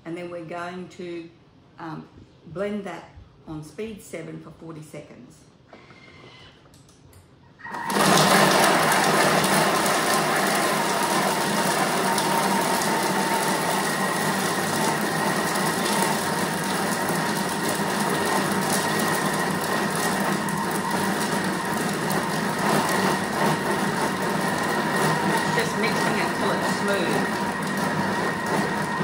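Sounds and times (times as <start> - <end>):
food processor blending: 7.6 - 29.0.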